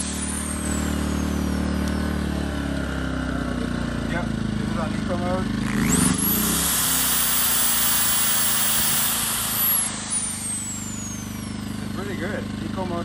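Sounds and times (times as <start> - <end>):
drill motor whine: 0.0 - 3.1, 5.7 - 12.8
generator engine running: 0.0 - 13.0.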